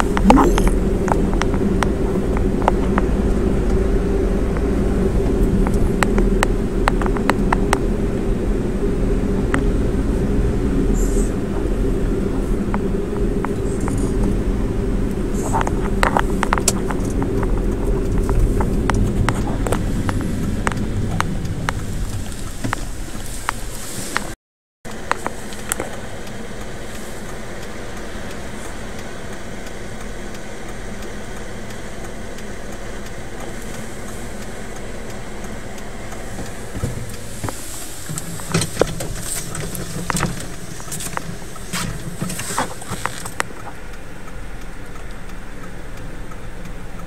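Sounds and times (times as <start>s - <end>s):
car engine rumbling inside cabin: 0.0s - 47.0s.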